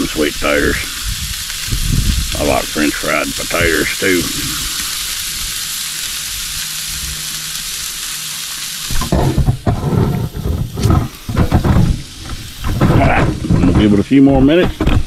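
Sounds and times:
chicken sizzling on grill: 0.0 - 14.9
loud thumps and rumbles: 8.9 - 15.0.

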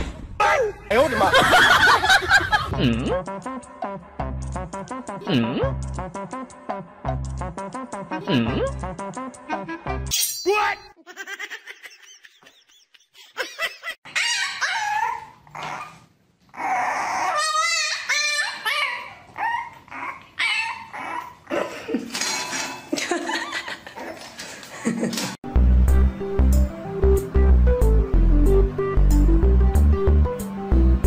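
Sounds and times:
dog whining and yipping: 14.1 - 21.4.

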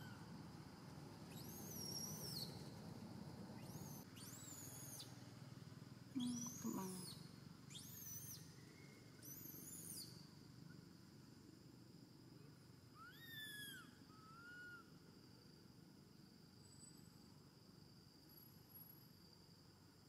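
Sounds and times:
high insect-like tone: 1.3 - 2.8, 6.1 - 20.0
baby monkey coo calls: 3.6 - 5.1, 6.2 - 8.4, 13.0 - 14.9.

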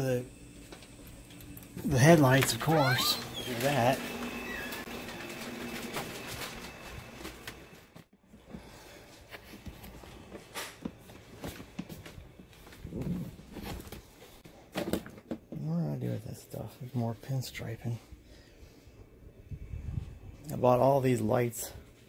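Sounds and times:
packaged items rustling and clicking: 0.7 - 8.0.

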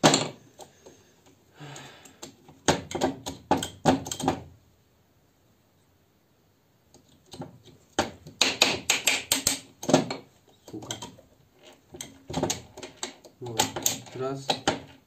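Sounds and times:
gearbox metal clicks and clunks: 2.1 - 4.4, 8.9 - 15.0.

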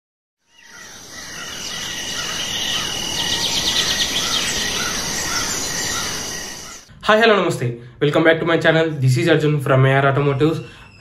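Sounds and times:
bird calling: 0.5 - 6.9
insects chirping: 0.5 - 6.9.

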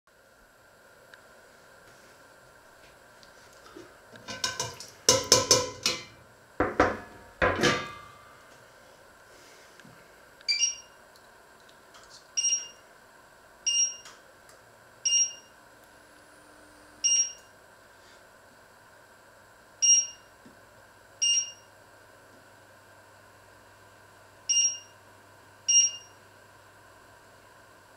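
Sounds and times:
faint steady hum: 0.1 - 27.9
two-tone cooktop beeps: 10.5 - 11.0, 12.4 - 12.8, 13.7 - 14.1, 15.0 - 15.5, 17.0 - 17.5, 19.8 - 20.3, 21.2 - 21.7, 24.5 - 25.0, 25.7 - 26.2.

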